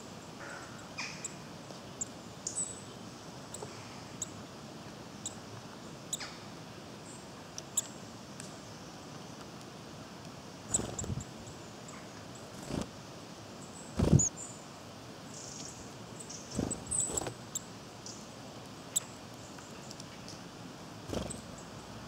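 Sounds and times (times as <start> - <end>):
small birds chirping: 0.0 - 4.5, 5.1 - 6.4, 7.0 - 9.5, 10.6 - 12.9, 13.6 - 20.5, 21.1 - 22.0
wings fluttering: 10.7 - 11.3, 12.5 - 13.0, 13.9 - 14.3, 16.5 - 17.4, 21.1 - 21.5.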